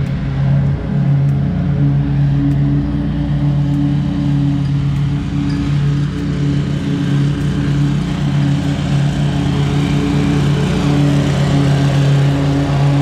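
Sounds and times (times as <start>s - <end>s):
mower engine running: 0.0s - 13.0s.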